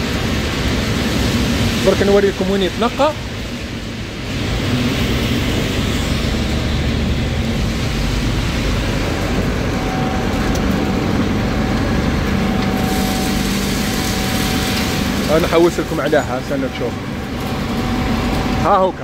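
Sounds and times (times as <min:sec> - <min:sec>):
industrial machinery rumbling: 0:00.0 - 0:19.0
thin steady whine: 0:06.3 - 0:19.0.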